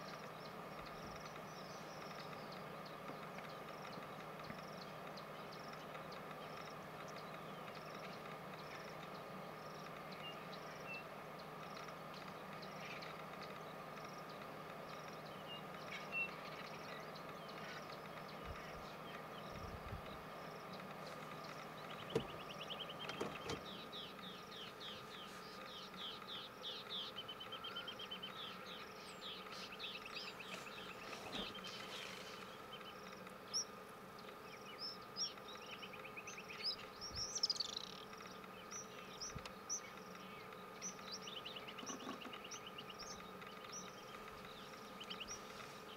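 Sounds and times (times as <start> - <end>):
birds chirping: 0.0 - 45.9
insect drone: 0.0 - 45.9.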